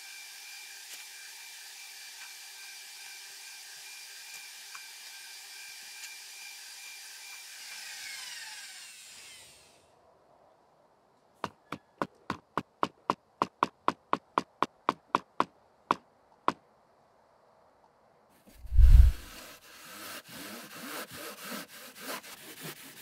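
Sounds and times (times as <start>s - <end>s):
electric drill motor whine: 0.0s - 9.8s.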